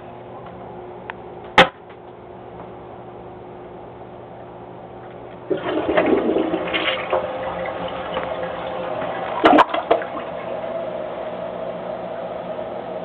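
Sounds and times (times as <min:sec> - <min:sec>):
toilet flushing: 0:05.4 - 0:12.4.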